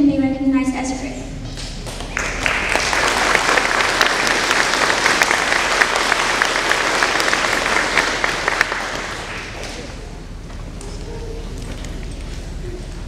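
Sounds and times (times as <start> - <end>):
audience applauding: 1.6 - 10.2.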